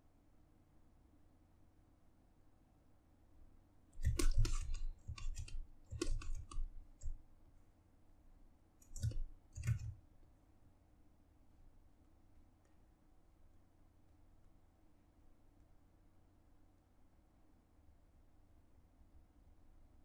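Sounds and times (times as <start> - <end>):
computer keys clicking: 4.0 - 7.2, 8.8 - 10.0.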